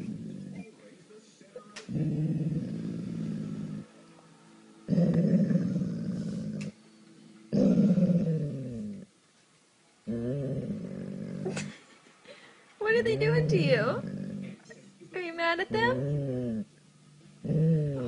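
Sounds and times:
dog growling: 0.0 - 0.8, 1.9 - 3.9, 4.9 - 6.8, 7.5 - 9.1, 10.0 - 11.8, 13.0 - 14.9, 15.7 - 18.0.

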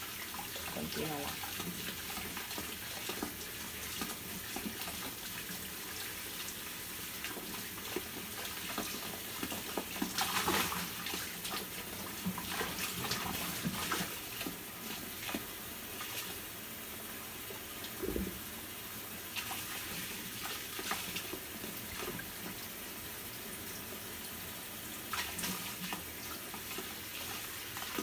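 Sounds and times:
water splash: 8.6 - 16.4.

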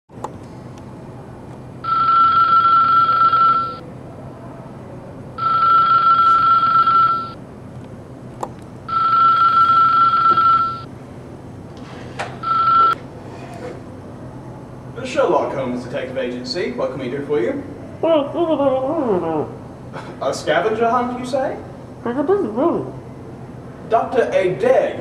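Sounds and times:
telephone ringing: 1.8 - 3.8, 5.4 - 7.4, 8.9 - 10.9, 12.4 - 13.0.

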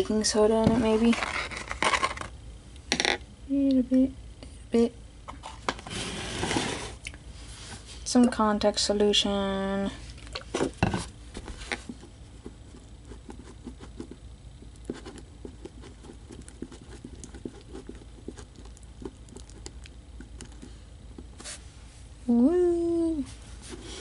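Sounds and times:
slime being stirred: 11.6 - 21.6.

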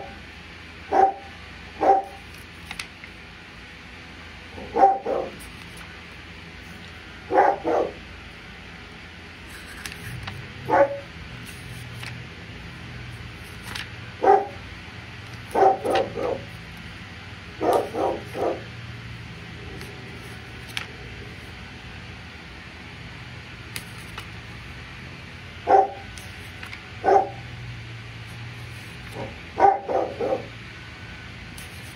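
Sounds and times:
dog barking: 0.9 - 2.2, 4.6 - 5.4, 7.3 - 8.0, 10.7 - 11.1, 14.2 - 14.6, 15.5 - 16.5, 17.6 - 18.6, 25.6 - 26.1, 27.0 - 27.4, 29.2 - 30.5.

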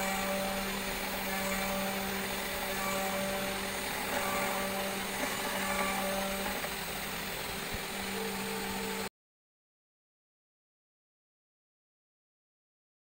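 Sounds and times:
hiss of cutting acrylic: 0.0 - 9.1
router spindle hum-whine: 0.0 - 9.1.

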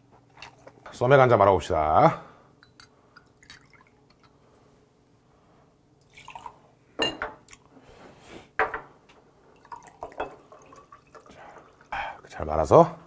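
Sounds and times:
beer pouring into glass: 3.2 - 4.3, 6.0 - 6.6, 9.6 - 12.4
glass bottles clinking: 7.0 - 7.4, 9.7 - 11.7.

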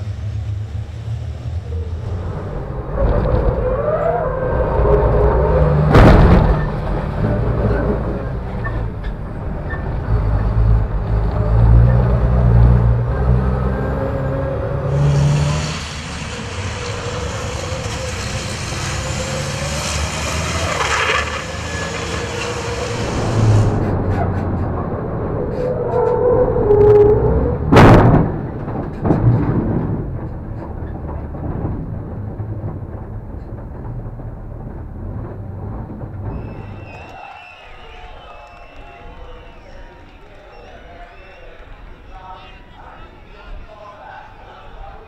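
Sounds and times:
turbo-diesel truck engine: 0.0 - 37.2.

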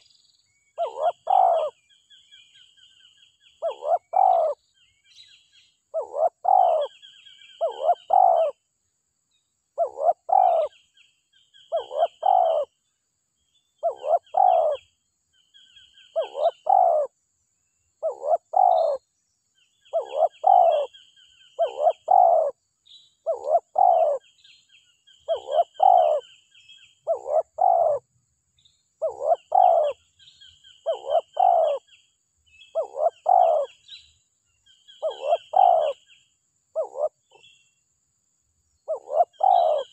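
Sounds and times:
dove cooing: 0.8 - 1.8, 3.6 - 4.6, 5.9 - 8.6, 9.8 - 10.8, 11.7 - 12.7, 13.8 - 14.8, 16.1 - 17.1, 18.0 - 19.0, 19.9 - 21.0, 21.6 - 22.6, 23.2 - 24.3, 25.2 - 26.3, 27.0 - 28.0, 29.0 - 30.0, 30.8 - 31.9, 32.7 - 33.8, 34.9 - 36.1, 36.7 - 37.5, 38.9 - 39.9.

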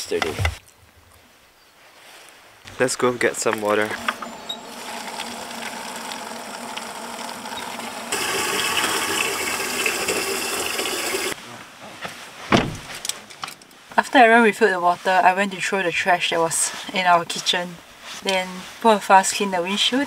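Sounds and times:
water running: 3.5 - 11.4
thump: 12.5 - 13.0.

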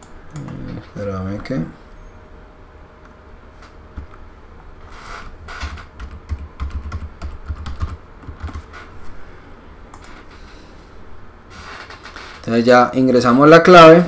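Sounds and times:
typing on computer keyboard: 5.9 - 8.7.

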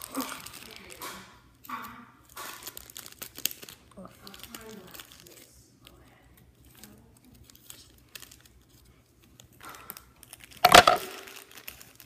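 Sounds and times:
plastic packaging crinkling: 0.0 - 1.0, 2.5 - 5.5, 6.6 - 12.0.

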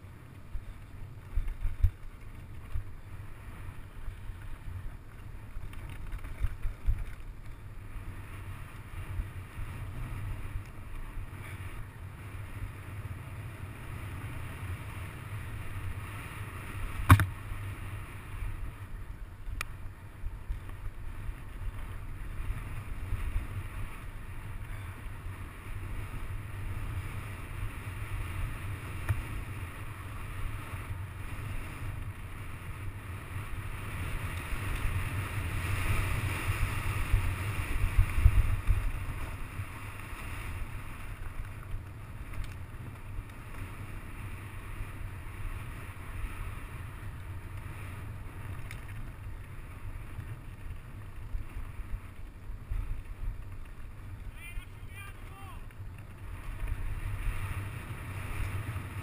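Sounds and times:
mountain bike rumbling and rattling: 0.0 - 59.0
low thumps from terrain: 16.9 - 17.7
wind buffeting microphone: 34.8 - 39.8.

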